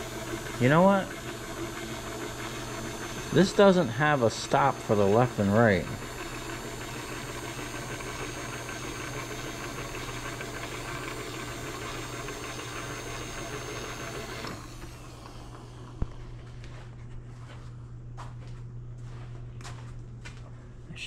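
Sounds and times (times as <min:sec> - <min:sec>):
machine power feed humming: 0:00.0 - 0:16.8.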